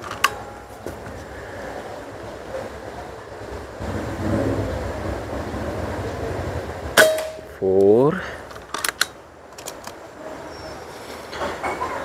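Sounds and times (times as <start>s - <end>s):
wind buffeting microphone: 1.0s - 7.0s.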